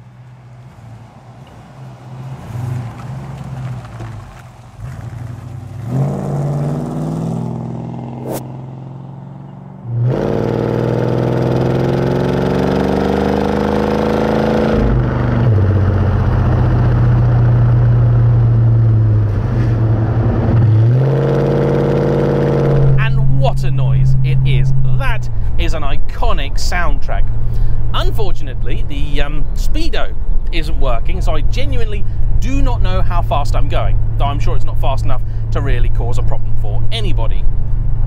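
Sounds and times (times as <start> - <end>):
car engine revving: 0.0 - 29.5
car driving past: 0.1 - 23.1.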